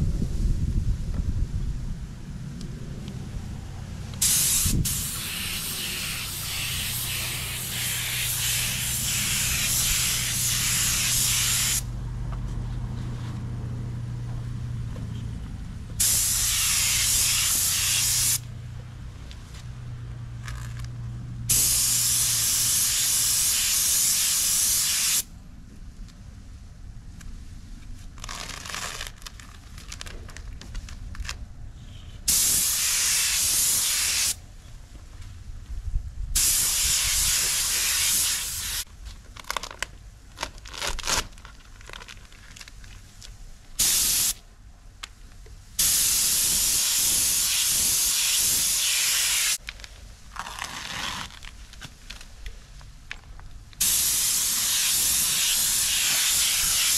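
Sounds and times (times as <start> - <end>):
paint spray gun hissing: 4.2 - 11.9, 16.0 - 18.4, 21.5 - 25.2, 32.3 - 34.4, 36.4 - 38.8, 43.8 - 44.4, 45.8 - 49.6, 53.8 - 56.9.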